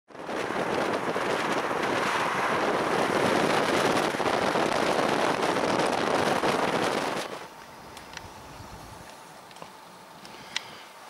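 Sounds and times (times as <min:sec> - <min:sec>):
wind blowing: 0:00.1 - 0:10.6
light crackle: 0:03.0 - 0:10.8.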